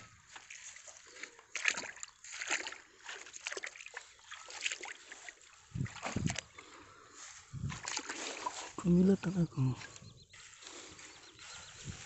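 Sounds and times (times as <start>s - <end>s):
wet weed rustling in a net: 4.4s - 9.3s.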